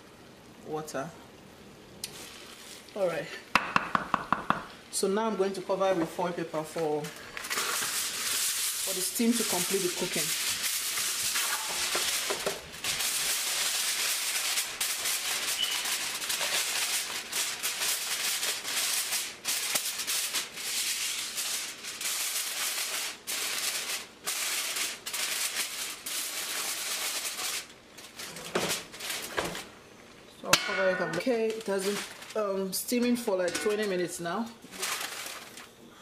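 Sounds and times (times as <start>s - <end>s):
aluminium foil crinkling: 2.0s - 3.2s, 6.6s - 36.0s.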